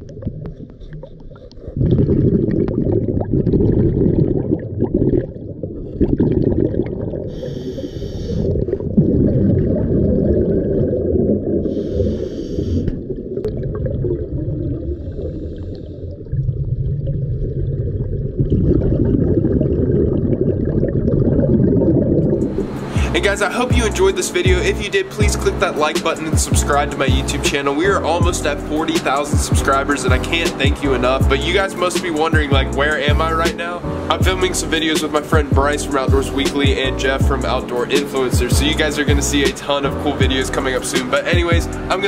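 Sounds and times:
exhaled air bubbling underwater: 0.0 - 22.9
regulator hissing inhalation: 7.3 - 8.5, 11.7 - 13.0.

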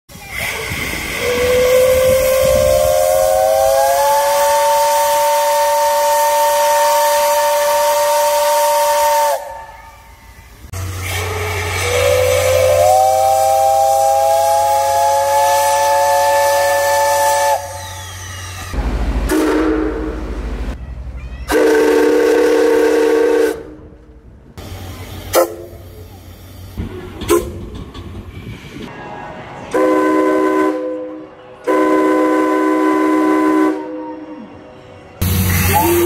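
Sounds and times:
steam hiss: 0.1 - 19.7, 24.6 - 27.4, 35.2 - 36.0
steam whistle blasts: 0.3 - 10.4, 11.0 - 18.6, 19.3 - 20.2, 21.5 - 23.8, 29.7 - 34.3, 35.4 - 36.0.

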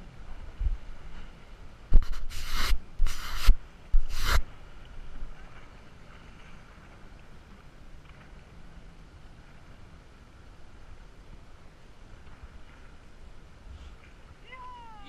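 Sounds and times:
hand rubbing camera: 2.0 - 4.4.

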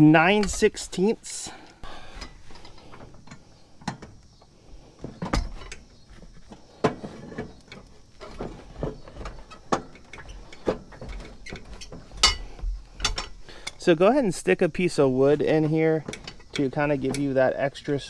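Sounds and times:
metal clinks and knocks: 5.0 - 13.8, 15.9 - 17.6.

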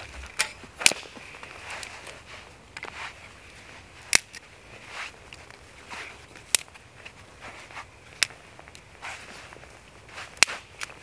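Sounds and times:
twigs snapping: 0.0 - 2.2, 4.0 - 4.5, 6.3 - 6.8, 9.5 - 11.0
rustle of sticks and leaves: 0.0 - 11.0.

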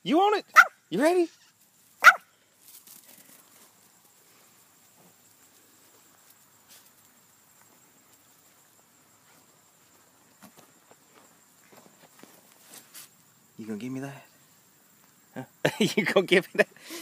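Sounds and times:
dog barking: 0.5 - 0.8, 2.0 - 2.3
soft rustles and ticks: 2.6 - 13.2.

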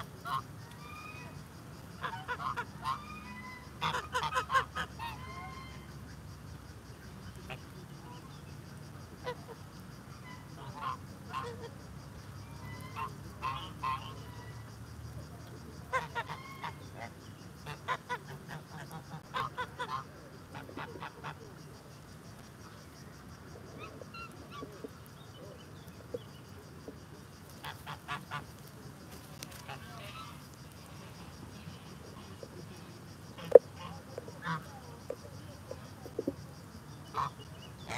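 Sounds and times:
geese honking: 0.0 - 1.4, 2.0 - 6.0, 10.2 - 11.7, 12.6 - 14.7, 15.9 - 21.6, 27.6 - 28.6, 29.4 - 32.6, 33.4 - 34.8, 37.1 - 37.9.

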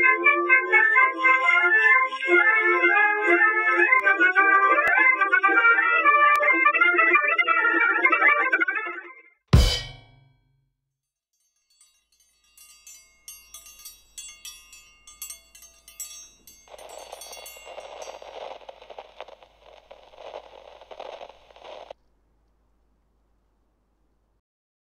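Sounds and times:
ringing chime strikes: 11.5 - 18.6
steady rushing noise: 16.7 - 22.0.

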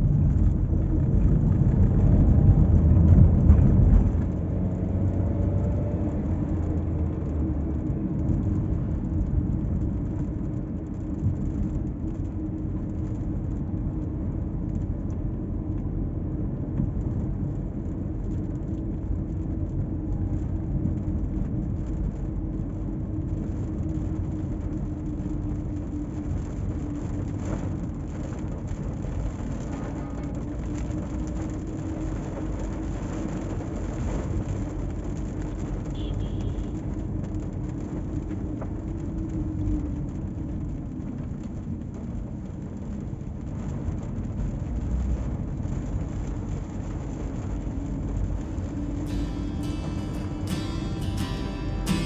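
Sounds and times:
car engine and road noise: 0.0 - 52.0.

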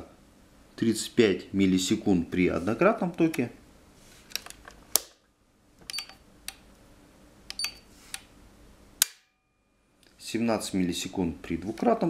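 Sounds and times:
circuit breaker snapping: 7.5 - 8.2.

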